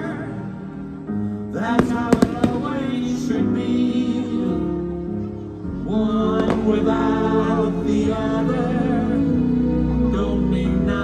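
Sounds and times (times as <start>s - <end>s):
music with singing over loudspeakers: 0.0s - 11.0s
firework bang: 1.8s - 3.1s.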